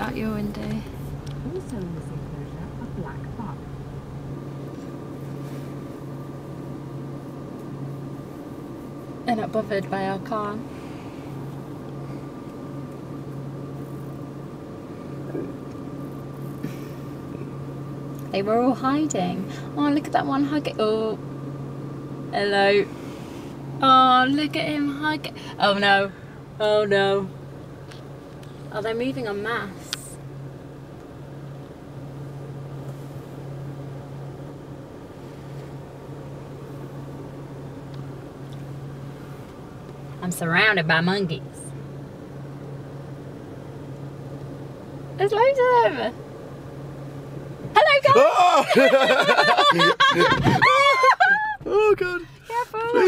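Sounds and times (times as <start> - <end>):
tyre and road noise: 0.0 - 17.6
car engine hum inside cabin: 0.0 - 53.0.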